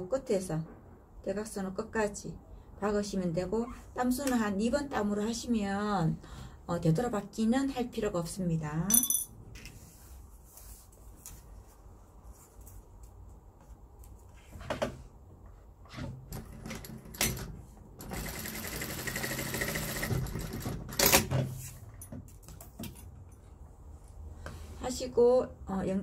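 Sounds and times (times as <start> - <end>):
fabric rustling: 9.8 - 13.0
sewing machine stitching: 18.0 - 21.3.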